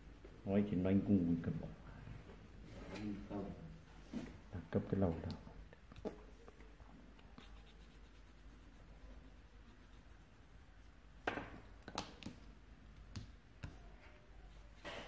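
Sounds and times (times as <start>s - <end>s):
pencil scratching on paper: 7.3s - 10.9s, 14.4s - 15.0s.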